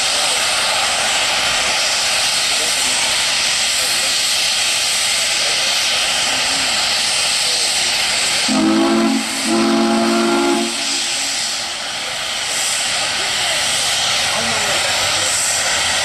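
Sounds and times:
steam hissing: 0:00.0 - 0:16.0
chime steam whistle blasts: 0:08.5 - 0:11.3.

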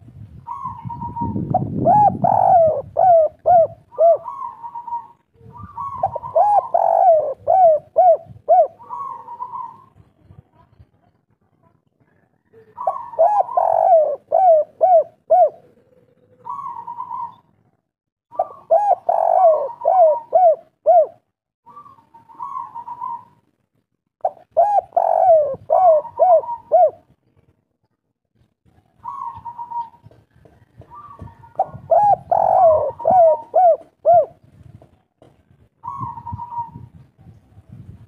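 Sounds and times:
dove cooing: 0:00.4 - 0:10.1, 0:12.4 - 0:17.6, 0:18.3 - 0:23.4, 0:24.2 - 0:27.2, 0:29.0 - 0:34.5, 0:35.8 - 0:37.0.

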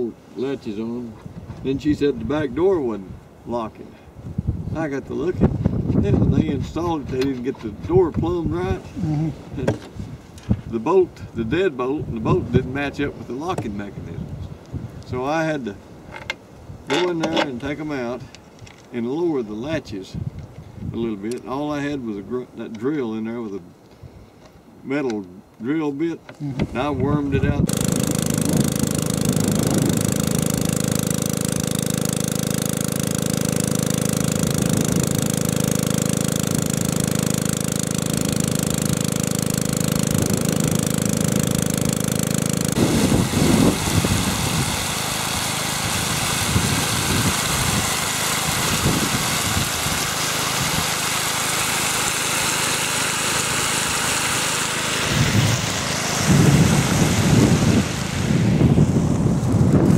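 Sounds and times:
wind rumbling on microphone: 0:01.1 - 0:03.5, 0:04.1 - 0:15.2, 0:20.1 - 0:21.1, 0:26.4 - 0:30.4, 0:42.7 - 0:45.0, 0:45.8 - 0:51.0, 0:55.0 - 0:59.9
small engine running: 0:27.6 - 0:59.9
water rushing from hose: 0:27.6 - 0:59.9.

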